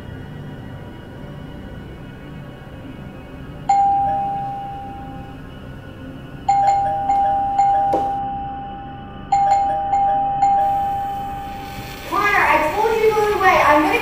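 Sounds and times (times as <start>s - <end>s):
doorbell ding-dong chime: 3.7s - 5.2s, 6.5s - 8.6s, 9.3s - 10.8s.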